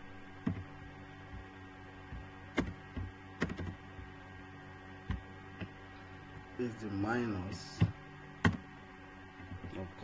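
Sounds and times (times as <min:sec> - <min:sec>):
electrical hum: 0:00.0 - 0:10.0
keyboard key clicks: 0:02.6 - 0:03.8.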